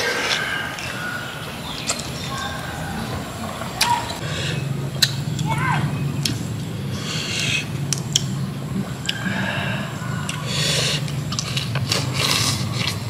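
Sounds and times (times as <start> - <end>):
steady low hum: 0.0 - 13.0
person chewing crunchy food: 7.4 - 13.0
sharp clicks: 7.8 - 8.4.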